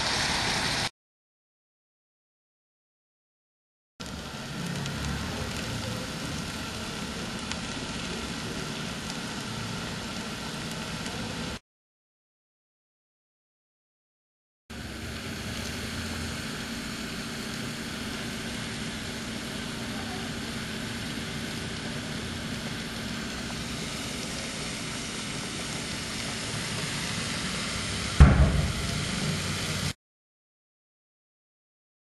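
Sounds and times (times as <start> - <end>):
stovetop rushing noise: 0.0 - 0.9, 4.0 - 11.6, 14.7 - 30.0
sharp knock: 28.2 - 28.8.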